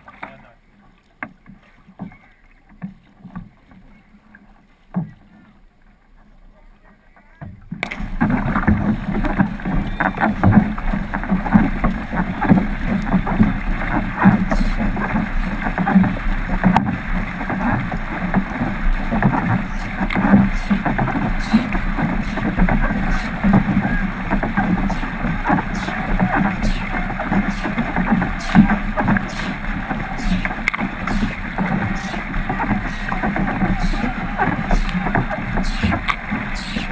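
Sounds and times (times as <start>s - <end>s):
paddle strokes splashing: 0.0s - 36.9s
water rushing along hull: 0.0s - 36.9s.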